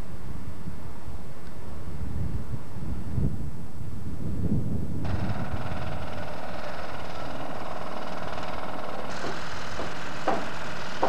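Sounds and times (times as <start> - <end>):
vehicle engine idling: 5.0 - 11.0
sharp knocks: 5.1 - 11.0.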